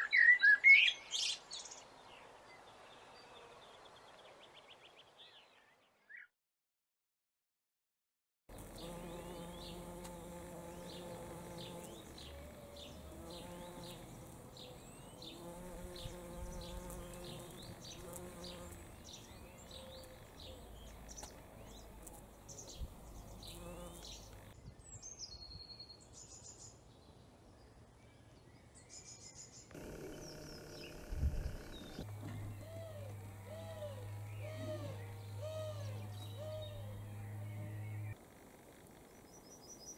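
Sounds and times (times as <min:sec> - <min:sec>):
bumblebee buzzing in flight: 0:08.5 - 0:24.5, 0:29.7 - 0:38.4.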